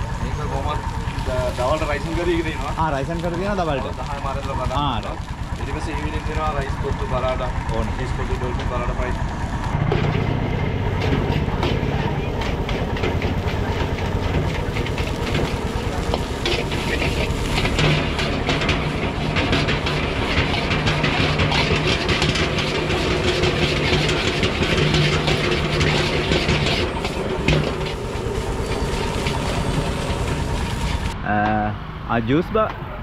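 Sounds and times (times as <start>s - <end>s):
gas burner hissing: 0.0s - 31.2s
metal ladle scraping a wok: 9.9s - 31.2s.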